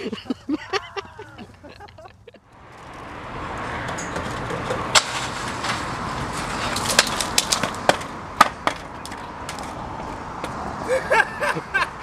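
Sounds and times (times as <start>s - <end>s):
skateboard wheels rolling on concrete: 0.0s - 12.0s
skateboard clacking and knocking: 3.8s - 5.1s, 6.8s - 9.7s.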